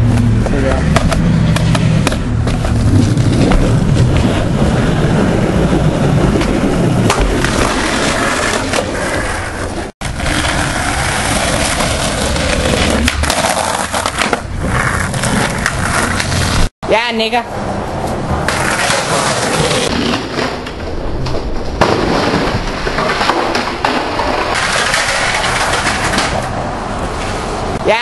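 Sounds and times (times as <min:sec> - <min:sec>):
skateboard wheels rolling on concrete: 0:00.0 - 0:16.7, 0:17.5 - 0:28.0
skateboard clacks: 0:00.2 - 0:02.8, 0:06.3 - 0:16.6, 0:18.5 - 0:26.6.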